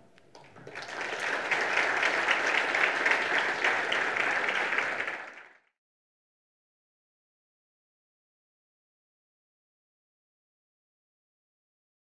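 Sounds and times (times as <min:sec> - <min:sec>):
audience applauding: 0:00.3 - 0:05.7.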